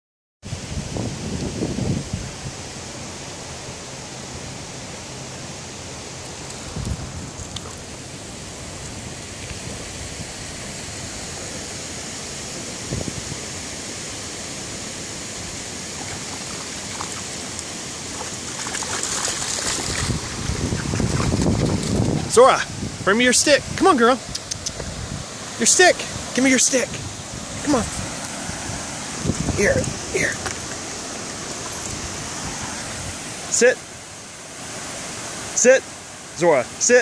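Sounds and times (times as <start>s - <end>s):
wind buffeting microphone: 0.5s - 2.7s, 6.5s - 11.8s, 12.4s - 13.7s, 18.2s - 26.3s, 26.9s - 33.4s
creek water flowing over rocks: 0.9s - 37.0s.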